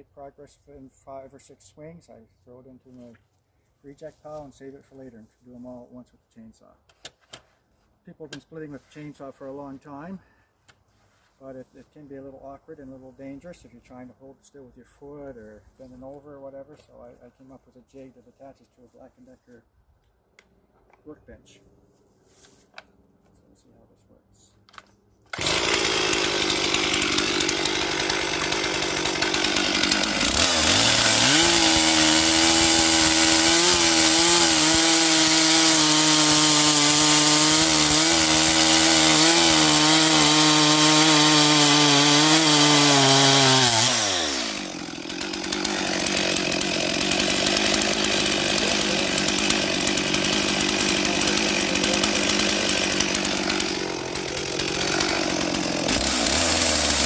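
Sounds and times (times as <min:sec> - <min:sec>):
chainsaw idling and revving: 0:25.3 - 0:57.0.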